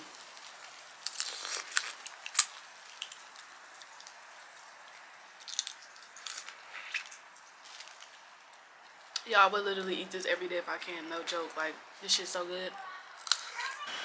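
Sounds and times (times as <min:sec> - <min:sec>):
shells cracking and peeling: 0:00.2 - 0:08.7, 0:13.2 - 0:13.7.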